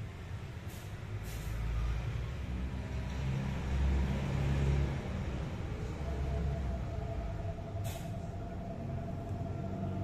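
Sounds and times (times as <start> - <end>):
low mechanical rumble: 5.0 - 10.0
hum: 6.0 - 10.0
brief hiss: 7.8 - 8.2.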